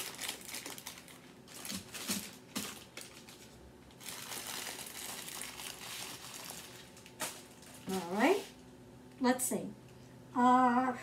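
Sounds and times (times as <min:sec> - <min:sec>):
plastic bags crinkling: 0:00.0 - 0:08.5.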